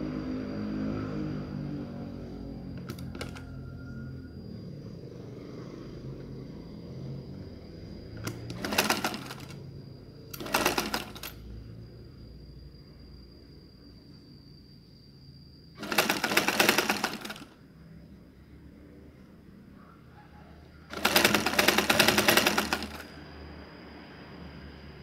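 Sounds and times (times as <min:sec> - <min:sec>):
sewing machine stitching: 0:02.8 - 0:03.4, 0:08.2 - 0:09.6, 0:10.3 - 0:11.4, 0:15.8 - 0:17.6, 0:20.9 - 0:23.1.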